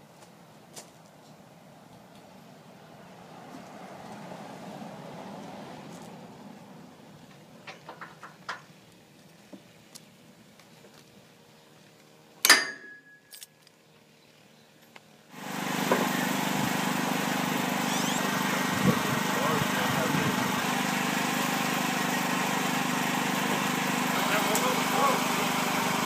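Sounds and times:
sharp metallic clank: 12.4s - 13.6s.

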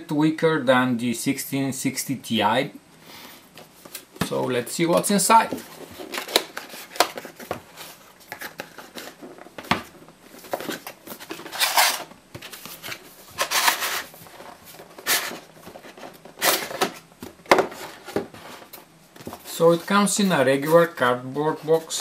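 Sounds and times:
cardboard scraping on cardboard: 12.7s - 16.8s.

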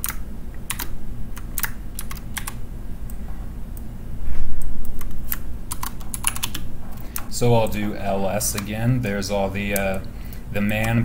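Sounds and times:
keyboard typing: 0.0s - 2.6s, 4.8s - 8.8s, 9.6s - 11.0s
steady low hum: 0.0s - 11.0s.

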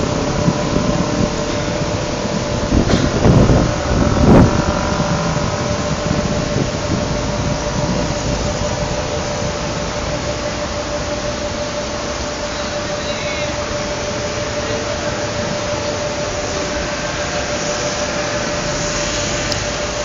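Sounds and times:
wind buffeting microphone: 0.0s - 10.9s
steady hum: 0.0s - 20.0s.

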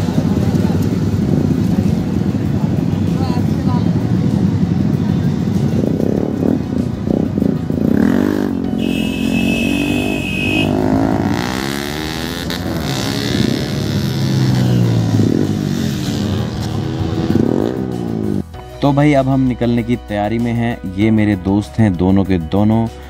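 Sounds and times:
motorcycle engines revving: 0.0s - 18.5s
high-pitched tone: 8.7s - 11.7s.

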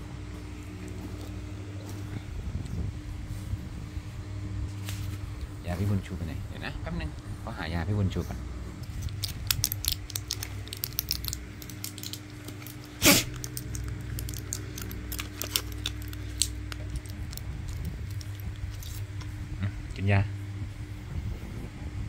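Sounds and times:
foil and plastic crinkling: 8.8s - 19.2s.

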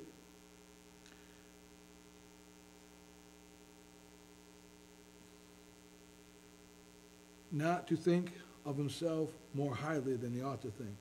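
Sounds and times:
electrical hum: 0.0s - 11.0s.

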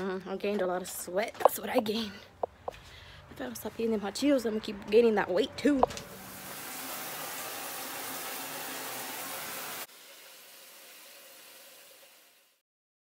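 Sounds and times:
shower spraying water: 5.9s - 12.6s.

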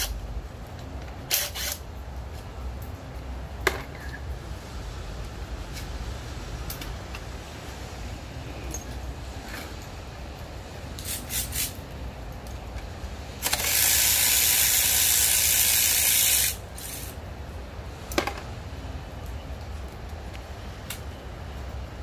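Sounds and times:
steady spraying hiss: 10.6s - 12.1s, 13.2s - 17.3s.

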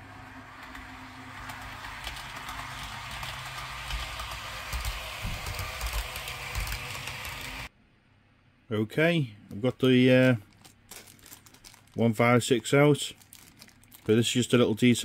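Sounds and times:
model train running on track: 0.0s - 7.7s.

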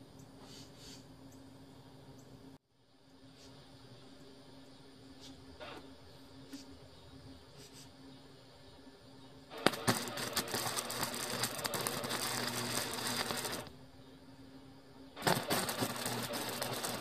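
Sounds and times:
arc striking pops: 9.5s - 13.7s, 15.2s - 17.0s
welding arc crackling: 9.5s - 13.7s, 15.2s - 17.0s.

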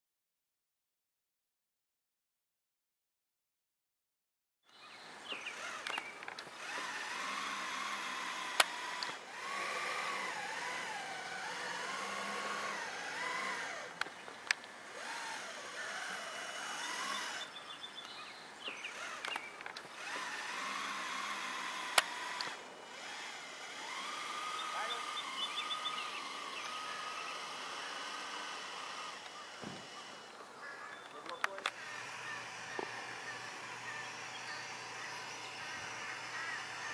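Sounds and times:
drone propellers whining: 5.2s - 18.0s, 18.6s - 36.9s
sharp clicks: 5.5s - 15.2s, 16.5s - 36.2s.

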